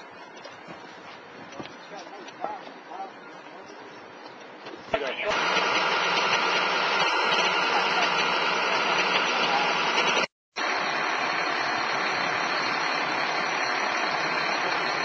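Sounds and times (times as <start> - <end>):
large vehicle engine idling: 5.0 - 15.0.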